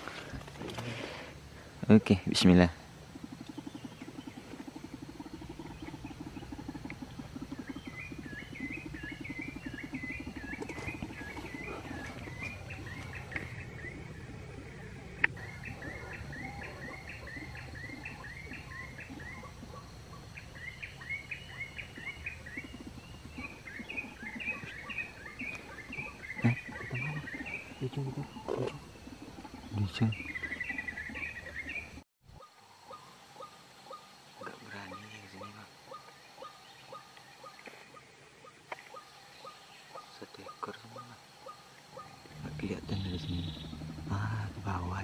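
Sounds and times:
low rapid throbbing: 42.2 - 45.0.

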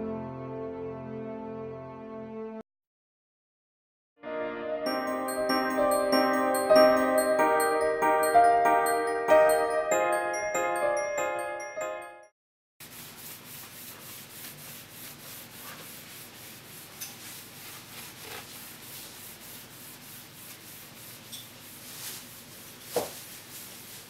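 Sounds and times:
glockenspiel music: 4.3 - 12.3.

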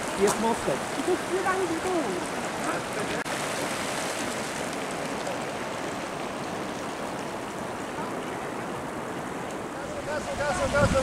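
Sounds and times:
rushing stream water: 0.0 - 11.0.

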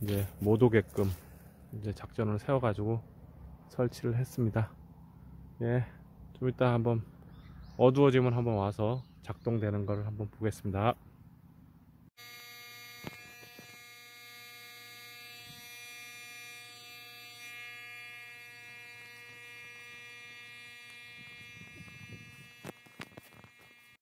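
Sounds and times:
electronic buzzer buzzing: 12.2 - 24.0.

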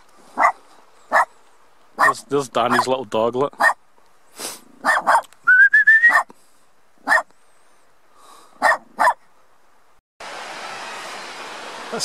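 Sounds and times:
small dog yapping: 0.4 - 1.3, 2.0 - 2.9, 3.6 - 3.8, 4.8 - 5.3, 6.1 - 6.3, 7.0 - 7.3, 8.6 - 9.2
person whistling rising whistle: 5.4 - 6.2.

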